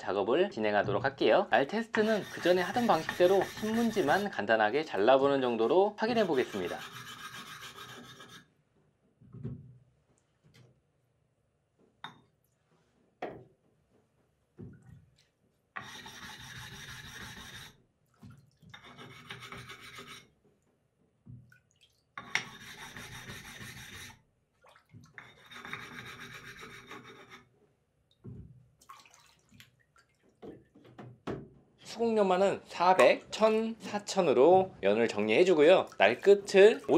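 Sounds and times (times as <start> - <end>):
stone grating on whetstone: 2.0 - 4.4, 6.1 - 8.5, 15.8 - 17.8, 18.7 - 20.3, 22.2 - 24.2, 25.2 - 27.5.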